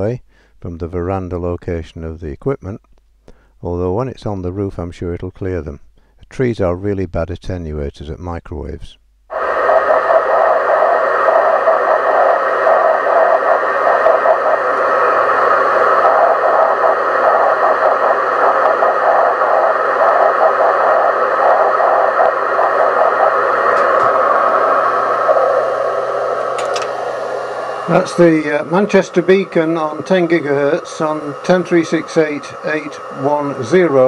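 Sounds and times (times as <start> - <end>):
receiver hiss: 8.5 - 34.0
radio beacon tone breaking up: 9.3 - 34.0.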